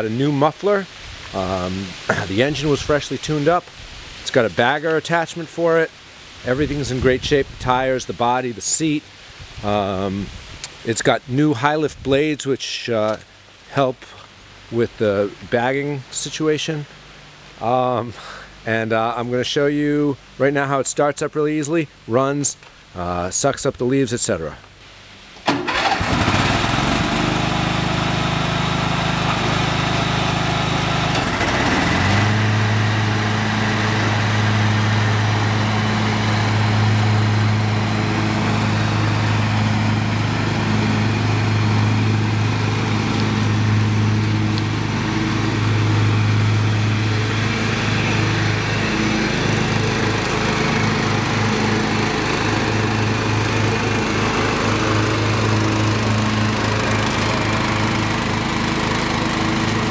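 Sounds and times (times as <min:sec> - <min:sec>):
riding mower engine running: 0:00.0 - 0:03.6, 0:25.4 - 0:59.9.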